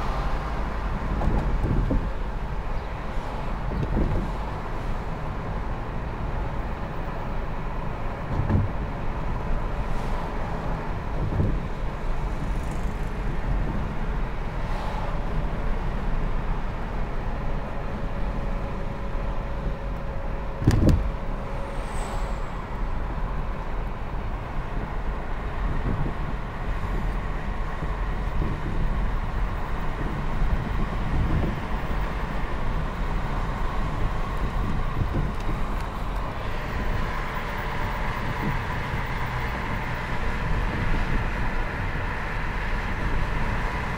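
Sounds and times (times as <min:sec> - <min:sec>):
car engine and tyre rumble: 0:00.0 - 0:43.9
thumps inside car: 0:08.3 - 0:08.8, 0:20.6 - 0:21.2.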